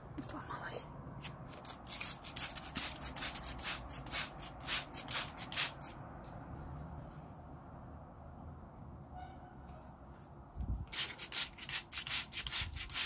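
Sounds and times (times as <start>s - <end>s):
spray bottle squirting water: 1.2s - 6.0s, 10.9s - 13.0s.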